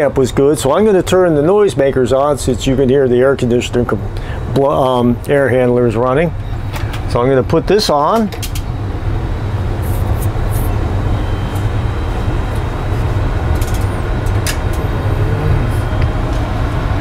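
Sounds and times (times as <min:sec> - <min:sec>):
air conditioning rumble: 0:00.0 - 0:17.0.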